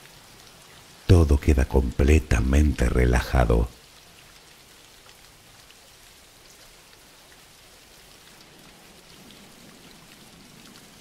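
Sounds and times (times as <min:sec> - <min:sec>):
steady rain hiss: 0:00.0 - 0:11.0.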